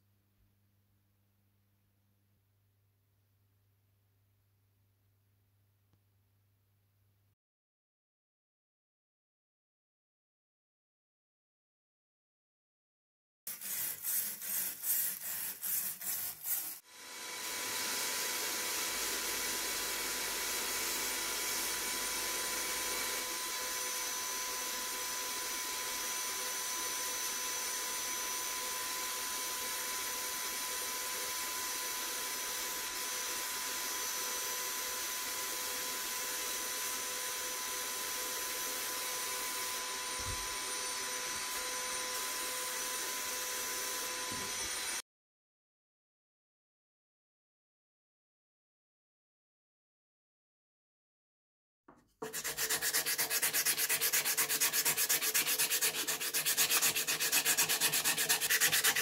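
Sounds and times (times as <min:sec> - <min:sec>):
wire brush scrubbing steel: 0:13.5 - 0:16.8, 0:52.2 - 0:59.0.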